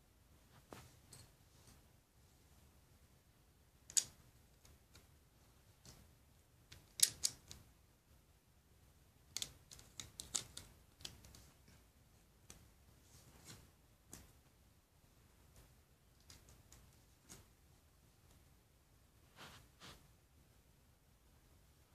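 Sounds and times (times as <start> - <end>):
plastic bricks clicking: 6.7 - 7.6, 9.3 - 11.4.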